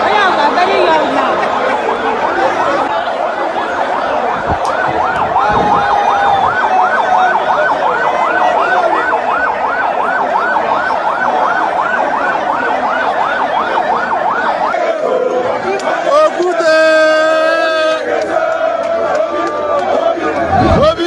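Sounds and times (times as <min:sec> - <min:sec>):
vehicle siren yelping: 0:00.0 - 0:18.1, 0:19.5 - 0:21.0
large crowd noise: 0:00.0 - 0:21.0.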